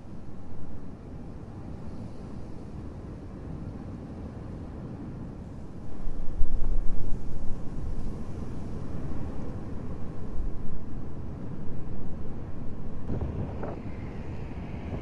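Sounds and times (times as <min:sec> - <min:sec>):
wind buffeting microphone: 0:05.5 - 0:15.0.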